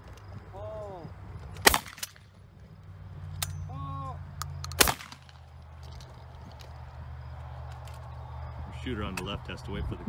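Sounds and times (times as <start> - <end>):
shotgun shot: 1.6 - 2.2, 4.8 - 5.3
person shouting: 3.7 - 4.2.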